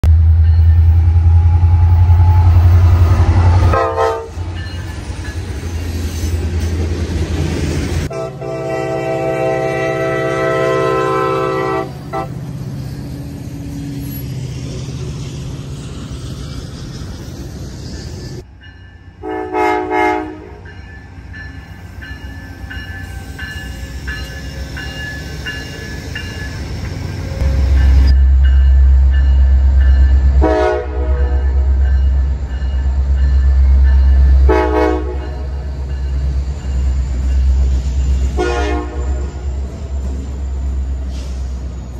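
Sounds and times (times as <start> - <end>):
passing train rumble: 0.0 - 41.9
train air horn: 1.0 - 4.5, 8.1 - 12.4, 19.2 - 20.6, 30.4 - 31.6, 34.4 - 35.5, 38.3 - 39.4.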